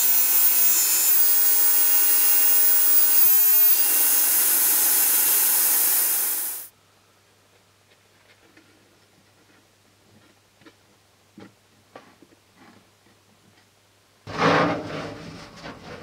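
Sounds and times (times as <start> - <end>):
panel saw cutting wood: 0.0 - 6.7.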